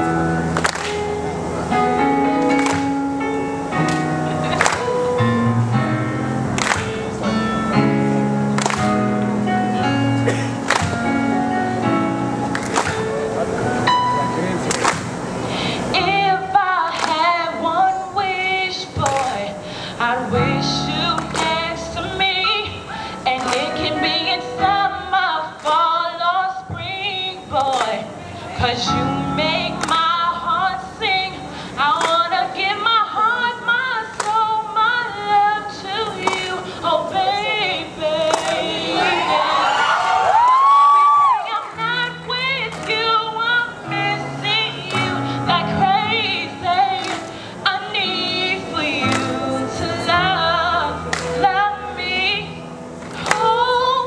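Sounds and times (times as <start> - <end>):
keyboard accompaniment: 0.0 - 54.0
woman singing into microphone: 15.7 - 54.0.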